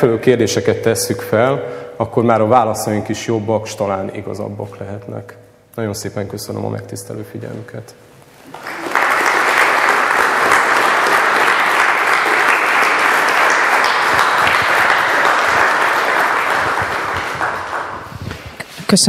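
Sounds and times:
audience applauding: 8.4 - 18.3.

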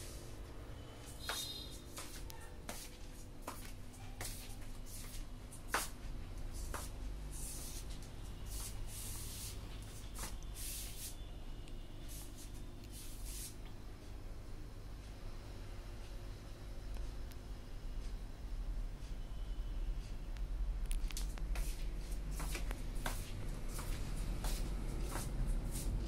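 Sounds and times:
soft clicks and rustles: 20.4 - 25.3.

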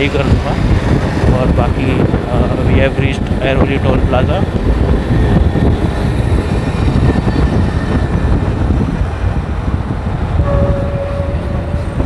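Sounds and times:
motorcycle engine and wind rumble: 0.0 - 12.0
passing traffic: 0.0 - 12.0
steady single-pitched tone: 10.4 - 12.0.

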